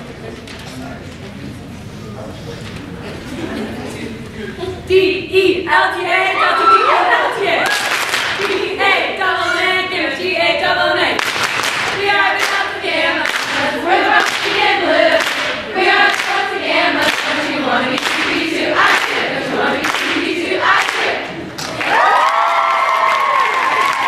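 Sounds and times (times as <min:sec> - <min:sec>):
women singing without instruments: 0:04.9 - 0:11.2
hands clapping: 0:07.6 - 0:08.6, 0:11.2 - 0:12.6, 0:13.2 - 0:13.6, 0:15.2 - 0:15.5, 0:16.1 - 0:16.4, 0:17.0 - 0:17.4, 0:18.0 - 0:19.2, 0:19.8 - 0:24.0.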